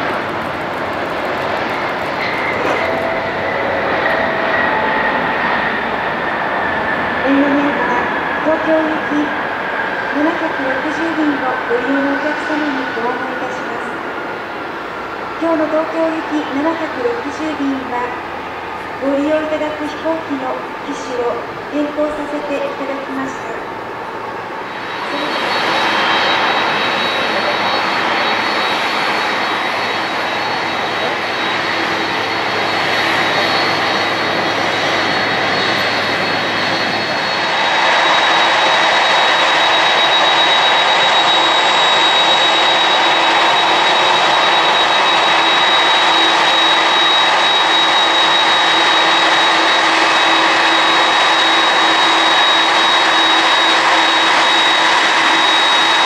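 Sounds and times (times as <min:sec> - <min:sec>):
jet engine roar and whine: 0:00.0 - 0:56.0.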